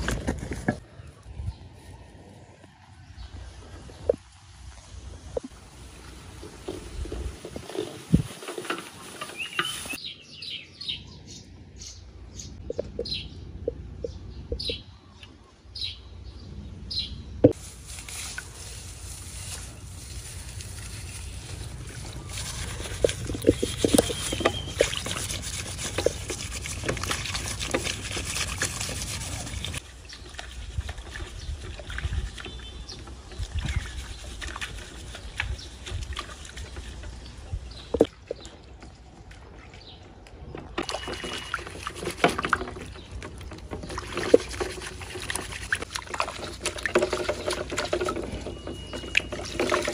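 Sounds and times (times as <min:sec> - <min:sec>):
dry straw rustling: 0:04.7 - 0:10.0, 0:17.5 - 0:31.8
water sloshing in metal basin: 0:05.6 - 0:10.0, 0:17.9 - 0:49.9
bird chirping: 0:09.2 - 0:17.6, 0:22.1 - 0:25.2, 0:47.2 - 0:49.9.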